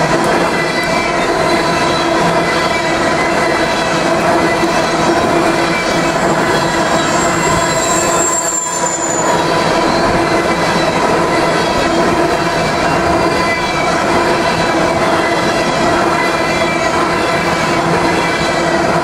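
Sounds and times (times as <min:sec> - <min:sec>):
train wheels rumbling on rails: 0:00.0 - 0:19.0
wheel squeal: 0:04.4 - 0:18.8.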